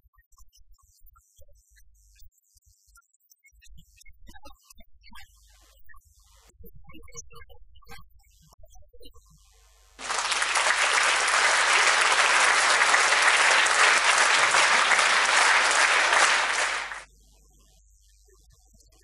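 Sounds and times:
audience applauding: 10.0 - 17.0.

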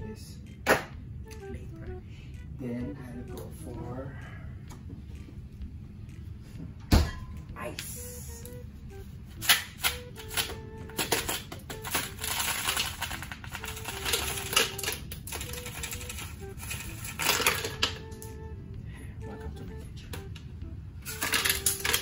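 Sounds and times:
ice cubes cracking from a tray: 11.0 - 17.9, 21.1 - 22.0
ice cubes clattering into a jar: 11.2 - 17.8, 21.1 - 22.0.

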